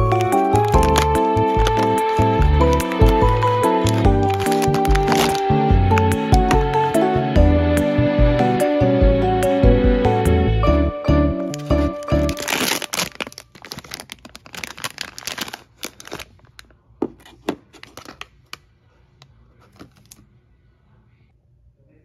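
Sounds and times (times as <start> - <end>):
foil pouch crinkling: 0.0 - 6.6, 11.5 - 18.7, 19.6 - 20.2.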